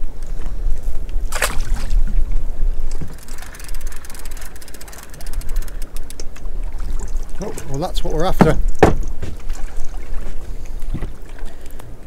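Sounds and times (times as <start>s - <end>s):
wind on microphone: 0.0s - 11.3s
fishing reel clicking: 3.0s - 6.4s.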